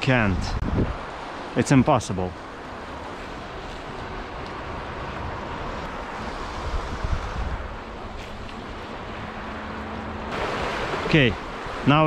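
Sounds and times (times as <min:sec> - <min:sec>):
wind buffeting microphone: 0:00.0 - 0:01.4, 0:02.7 - 0:09.4
river water rushing: 0:00.0 - 0:12.0.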